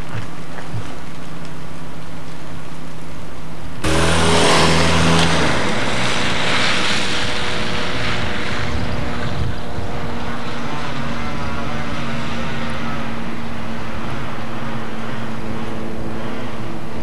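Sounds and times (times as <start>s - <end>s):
vehicle engine running: 0.0s - 17.0s
rushing noise: 3.7s - 17.0s.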